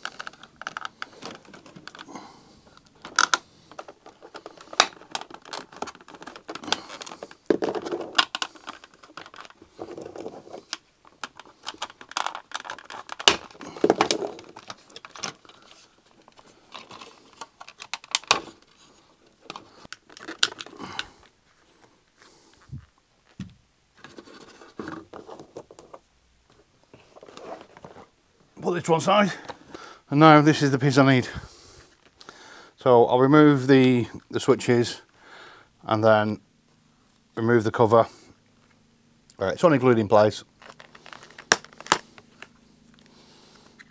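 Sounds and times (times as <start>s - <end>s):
plastic panels scraping and rattling: 0.0s - 18.8s
plastic clips snapping loose: 2.8s - 7.2s.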